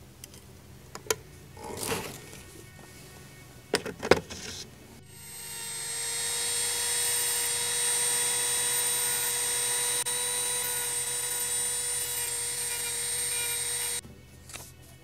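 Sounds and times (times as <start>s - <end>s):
rotary tool high-pitched whine: 4.4s - 14.0s.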